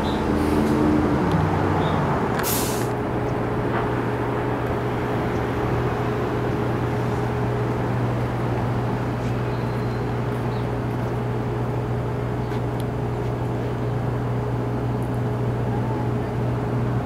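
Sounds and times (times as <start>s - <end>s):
heavy vehicle idling: 0.0s - 17.0s
air release hiss: 2.4s - 3.0s.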